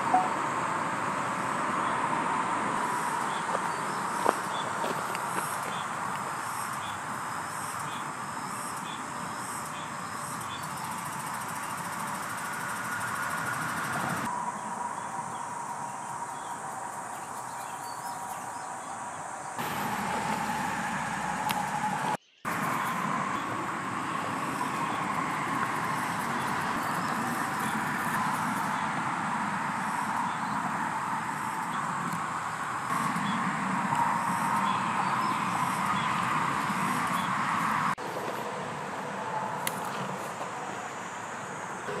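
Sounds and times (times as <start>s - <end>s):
faint held tone: 0.0s - 0.4s
outdoor background noise: 0.0s - 42.0s.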